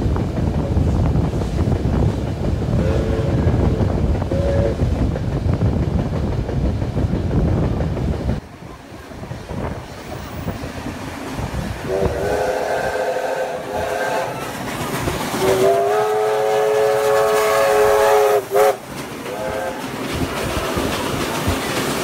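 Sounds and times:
train rumbling: 0.0s - 22.0s
steam locomotive whistle: 2.8s - 4.9s, 11.8s - 14.6s, 15.4s - 19.9s.

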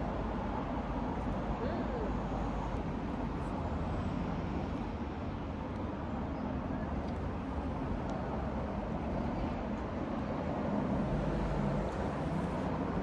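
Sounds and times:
low rumble of street traffic: 0.0s - 13.0s.

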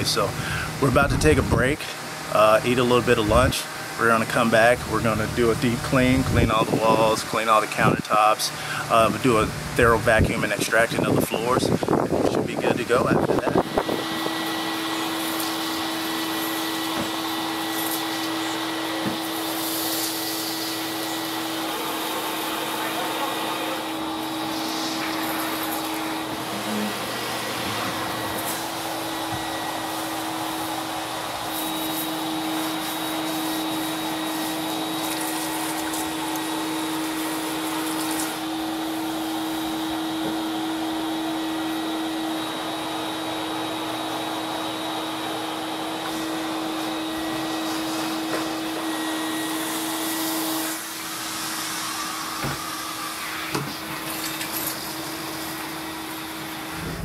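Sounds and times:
vacuum cleaner running: 0.0s - 57.0s
vacuum wand on carpet: 13.6s - 51.5s.

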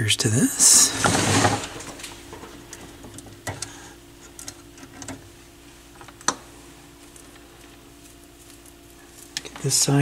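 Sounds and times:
faint steady hum: 0.0s - 10.0s
speaker wires clicking and rattling: 4.3s - 5.2s.

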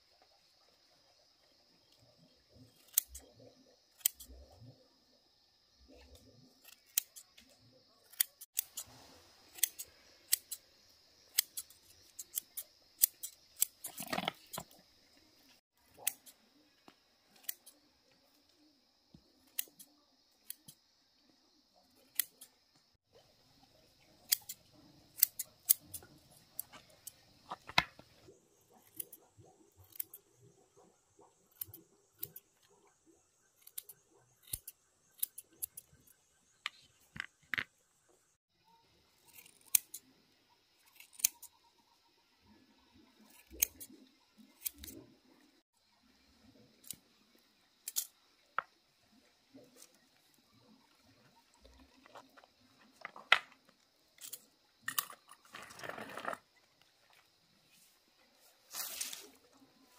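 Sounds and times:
insects droning: 0.0s - 59.9s
sharp snipping clicks: 2.8s - 4.5s, 6.0s - 14.8s, 15.9s - 17.8s, 19.4s - 20.8s, 21.9s - 22.6s, 24.0s - 28.1s, 28.7s - 30.4s, 31.5s - 32.8s, 33.6s - 36.1s, 39.2s - 40.1s, 40.8s - 41.6s, 43.2s - 45.0s, 47.8s - 48.7s.

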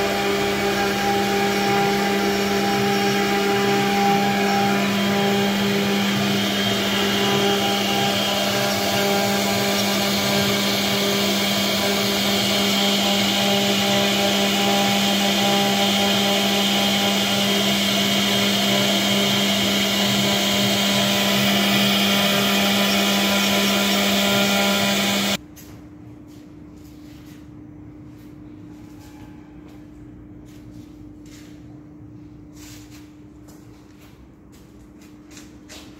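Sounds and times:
router spindle whining: 0.0s - 25.4s.

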